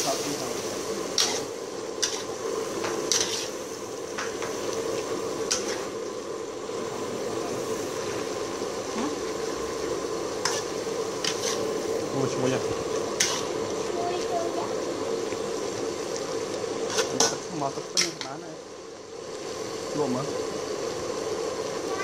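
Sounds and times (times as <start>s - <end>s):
food sizzling and bubbling: 0.0s - 22.0s
metal spoon scraping a pan: 1.2s - 3.6s, 5.4s - 5.9s, 10.4s - 11.8s, 12.9s - 13.6s, 16.8s - 18.3s.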